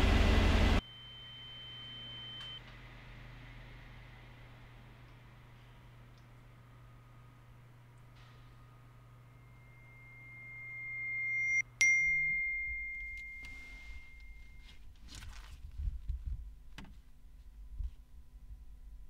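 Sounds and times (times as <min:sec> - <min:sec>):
low car interior hum: 0:00.0 - 0:00.8
high steady ringing tone: 0:00.8 - 0:02.6, 0:07.6 - 0:14.8
smartphone notification ding: 0:11.8 - 0:14.6.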